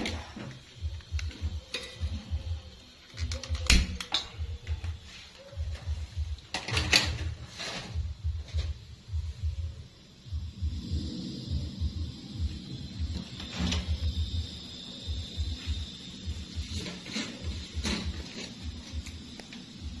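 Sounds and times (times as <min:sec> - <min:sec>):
metal wok knocks and clanks: 0:06.5 - 0:08.1.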